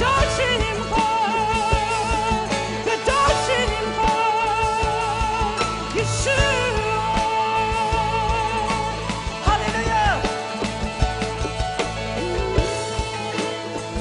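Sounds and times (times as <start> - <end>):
woman singing with vibrato: 0.0 - 10.3
band playing live: 0.0 - 14.0.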